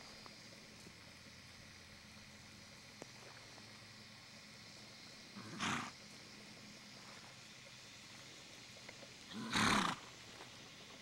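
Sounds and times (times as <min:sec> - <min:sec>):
horse snorting: 0:05.4 - 0:05.9, 0:09.3 - 0:10.0.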